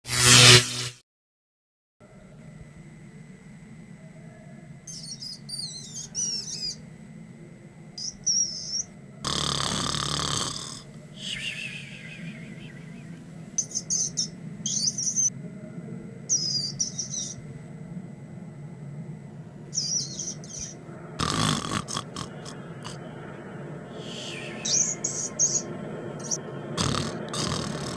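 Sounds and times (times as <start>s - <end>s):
loud noisy bursts: 0.1s - 1.0s, 9.3s - 13.3s, 21.2s - 23.0s, 23.8s - 25.4s, 26.2s - 27.9s
rat squeaking: 4.9s - 6.8s, 8.0s - 8.9s, 13.6s - 15.3s, 16.3s - 17.4s, 19.7s - 23.0s, 24.0s - 27.9s.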